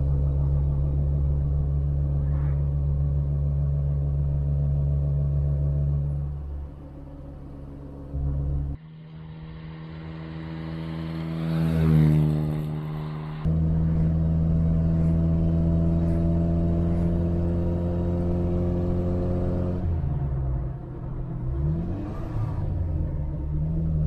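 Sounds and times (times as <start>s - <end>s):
car engine cruising drone: 0.0s - 24.0s
car engine passing by: 8.4s - 24.0s.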